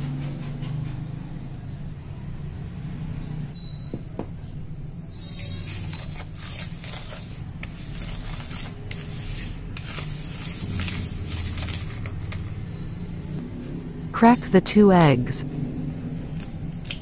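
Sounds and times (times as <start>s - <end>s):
whisk scraping in bowl: 5.4s - 12.4s.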